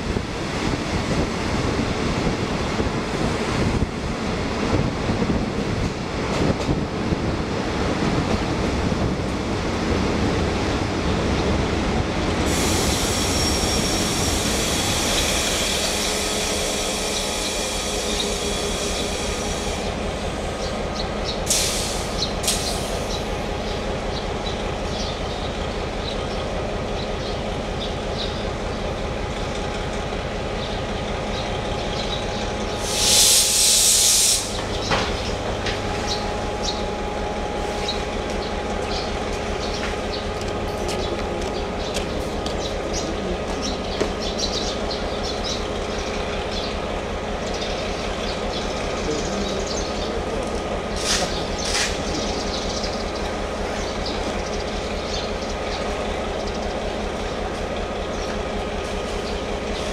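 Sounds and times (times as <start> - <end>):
diesel train idling hum: 0.0 - 59.9
compressed air hissing: 12.4 - 20.0, 21.4 - 23.3, 32.8 - 34.8.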